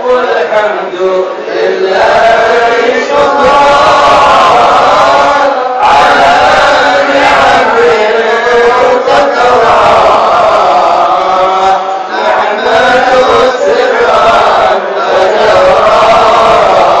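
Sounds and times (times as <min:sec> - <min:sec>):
men chanting in unison: 0:00.0 - 0:17.0.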